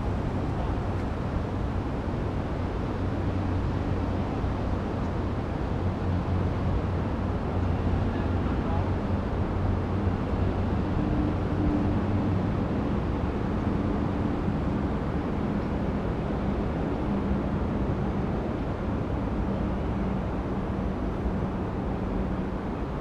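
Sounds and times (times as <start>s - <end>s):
outdoor background rumble: 0.0s - 23.0s.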